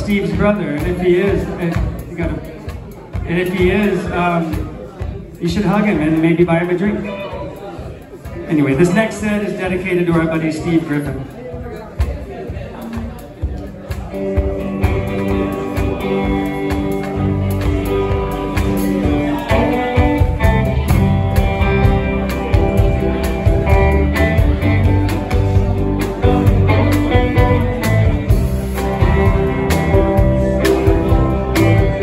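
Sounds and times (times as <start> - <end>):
band playing electric guitars: 12.8 - 32.0.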